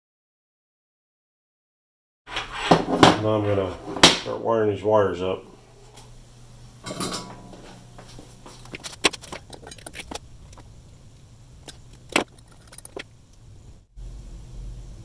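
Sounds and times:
metallic clicks of tools and wires: 8.6s - 10.7s, 11.6s - 13.4s.

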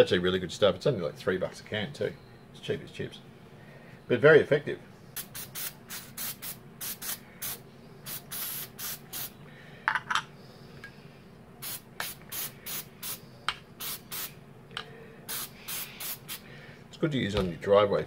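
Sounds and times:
aerosol can spraying short squirts: 5.2s - 9.3s, 15.3s - 16.4s.

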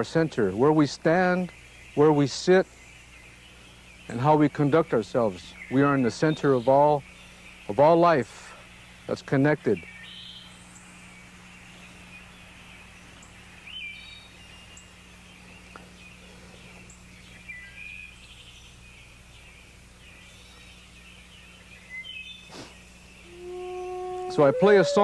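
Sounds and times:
low steady hum: 0.0s - 25.0s
bird chirps and calls: 9.6s - 25.0s.

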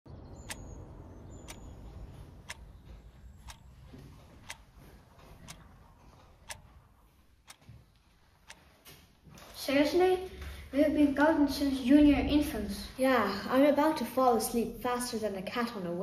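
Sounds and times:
clock ticking: 0.2s - 10.5s.

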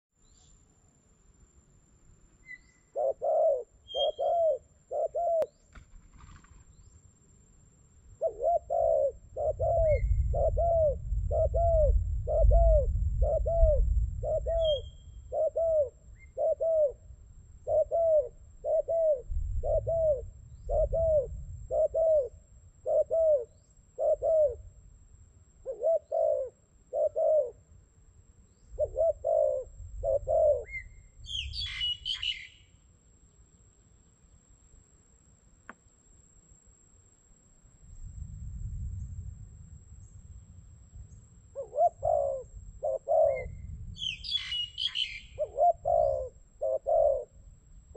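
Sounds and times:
small bird chirping: 0.2s - 0.7s, 2.3s - 7.1s, 8.2s - 17.0s, 28.4s - 34.5s, 41.0s - 47.3s
dove cooing: 2.8s - 5.6s, 8.2s - 24.7s, 25.6s - 27.7s, 28.8s - 30.9s, 41.6s - 47.4s
wind rumbling on microphone: 8.2s - 25.2s, 28.5s - 32.3s, 37.7s - 47.9s.

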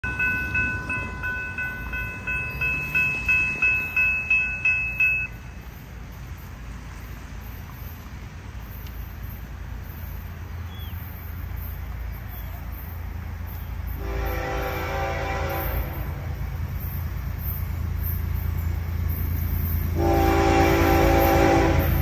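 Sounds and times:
crossing warning bell ringing: 0.0s - 8.1s, 8.8s - 22.0s.

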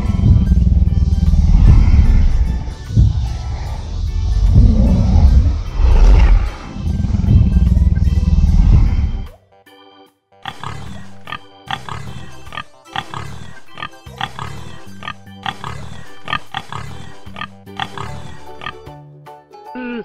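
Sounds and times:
deep dinosaur roar: 0.0s - 9.3s
pig grunting: 0.0s - 9.3s, 10.5s - 18.9s
background music: 0.0s - 20.0s.

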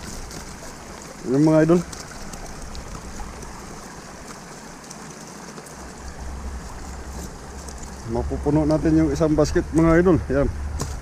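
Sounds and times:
nylon net rustling: 0.0s - 9.5s, 10.6s - 11.0s
river water rushing: 0.0s - 11.0s.

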